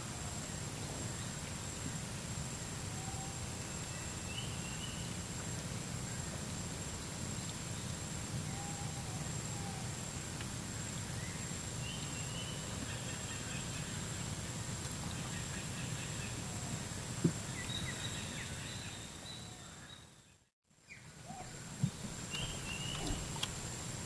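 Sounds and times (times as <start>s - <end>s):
faint bird chirps: 17.5s - 23.5s.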